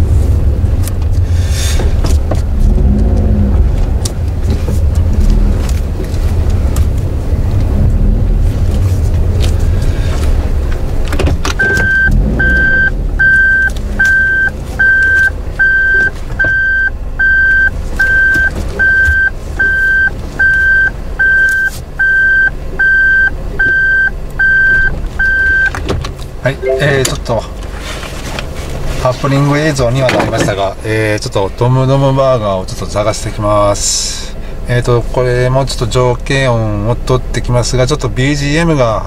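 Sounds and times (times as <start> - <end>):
car engine and tyres rumbling: 0.0 - 39.0
reversing buzzer beeping: 11.6 - 24.7.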